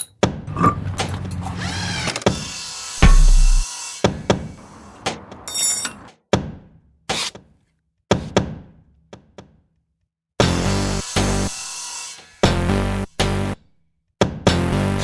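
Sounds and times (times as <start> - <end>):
metal tools knocking and clunking: 0.0 - 1.2, 3.0 - 3.6
deep booming hit: 3.0 - 3.6.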